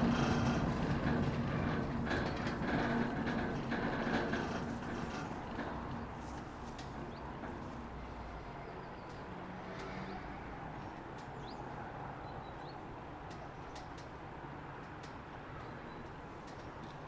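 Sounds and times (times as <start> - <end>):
funicular car rumbling: 0.0 - 17.0
birds chirping: 10.8 - 14.1.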